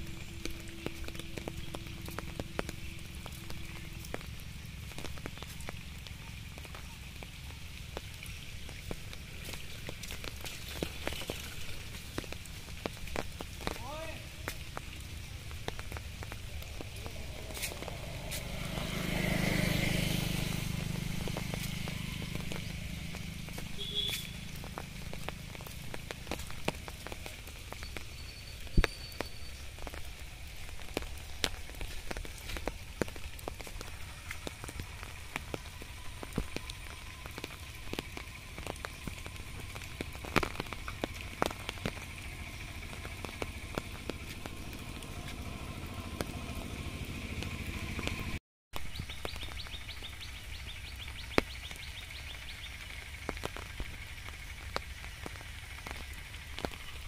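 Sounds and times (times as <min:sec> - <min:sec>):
light rain hiss: 0:00.0 - 0:57.0
raindrops tapping on leaves: 0:00.0 - 0:57.0.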